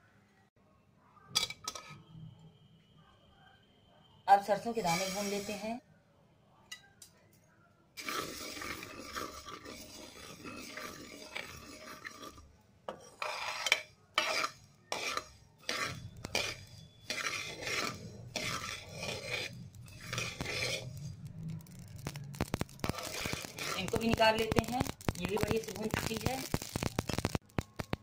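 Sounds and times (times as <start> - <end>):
metal spoon scraping a pan: 1.4 - 2.1, 4.4 - 5.8, 8.0 - 27.4
seeds rattling in a pan: 8.0 - 12.4, 13.2 - 28.0.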